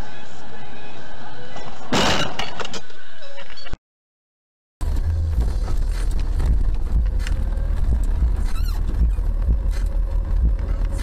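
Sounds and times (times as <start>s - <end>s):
car road and engine rumble: 4.8s - 11.0s
wavering squeak: 8.4s - 9.3s.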